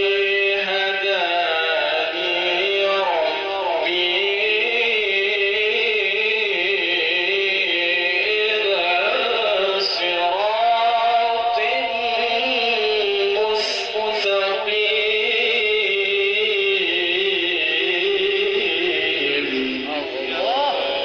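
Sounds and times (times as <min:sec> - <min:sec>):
man reciting melodically: 0:00.0 - 0:21.0.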